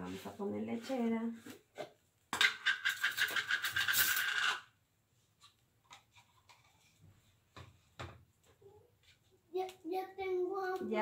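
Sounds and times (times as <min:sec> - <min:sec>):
dishes tapping and knocking: 0:02.3 - 0:03.8, 0:07.5 - 0:08.3.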